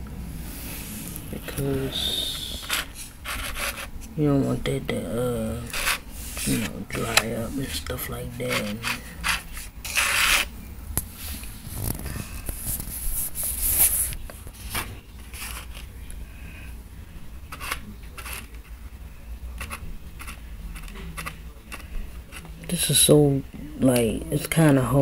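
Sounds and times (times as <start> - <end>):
handling rubbing and scraping: 0.4 - 16.1, 17.4 - 25.0
scratchy rustles on cardboard: 2.6 - 3.9.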